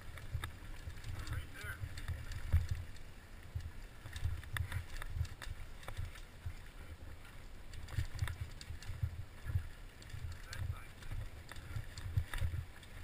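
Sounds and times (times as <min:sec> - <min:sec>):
bike clicks and rattles: 0:00.0 - 0:13.0
mountain bike rumble on dirt: 0:03.5 - 0:06.9, 0:07.8 - 0:13.0.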